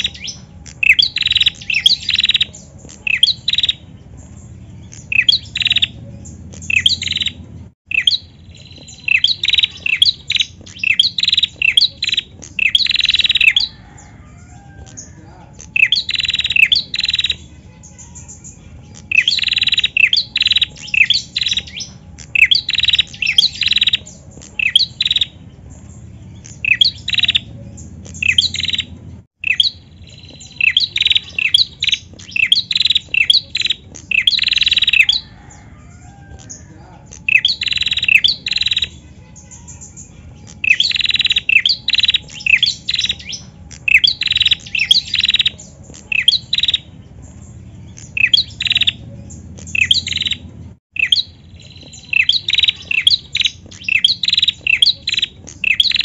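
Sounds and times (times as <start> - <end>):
songbird chirping: 0.0 - 56.0.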